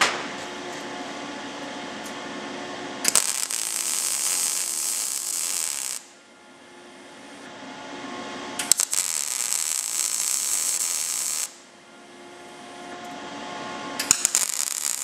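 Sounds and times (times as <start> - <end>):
steady hum: 0.0 - 15.0
welding arc hissing: 3.0 - 6.1, 8.6 - 11.6, 14.1 - 15.0.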